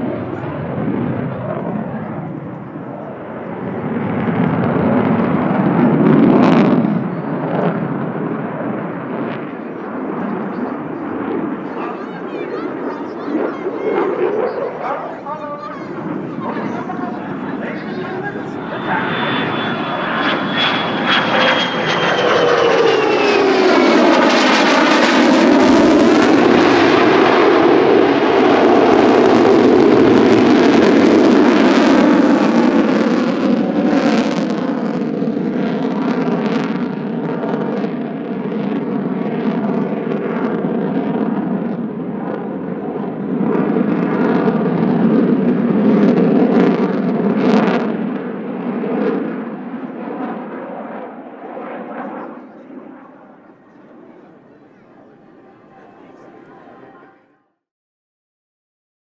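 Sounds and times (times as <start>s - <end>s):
jet engine roar: 0.0s - 57.2s
jet whine falling in pitch: 2.7s - 42.4s.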